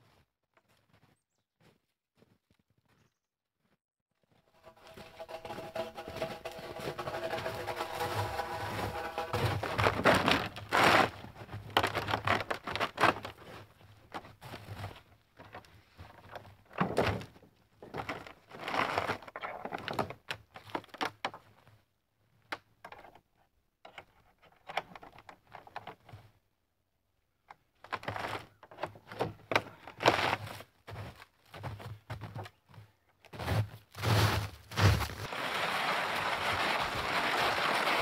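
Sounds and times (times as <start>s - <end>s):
dry branches crackling and thunking: 4.6s - 21.5s, 33.9s - 38.0s.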